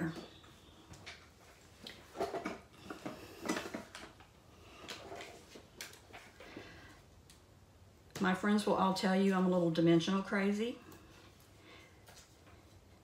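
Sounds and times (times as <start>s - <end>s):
paper supplies tapping and rustling: 1.0s - 6.5s.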